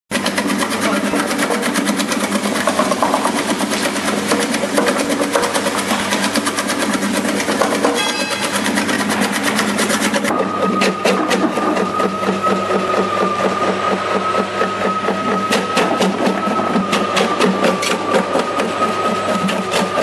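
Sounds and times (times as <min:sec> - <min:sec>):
motor hum: 0:00.1 - 0:20.0.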